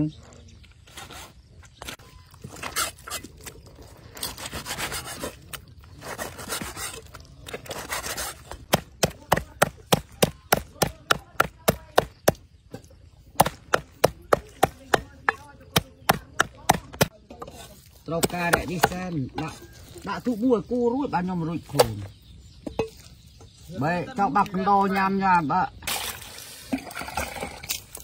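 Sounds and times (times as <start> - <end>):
cleaver slicing and scraping meat: 0.8 - 12.3
cleaver chopping on wooden block: 8.0 - 17.1, 18.2 - 19.1.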